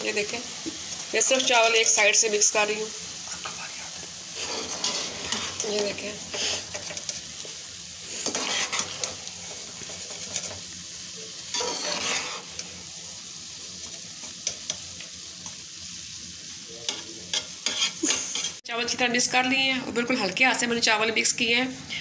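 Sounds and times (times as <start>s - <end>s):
syrup sizzling: 0.0s - 19.4s
spoon scraping rice in steel pot: 8.2s - 9.2s, 11.5s - 12.7s, 16.9s - 18.6s.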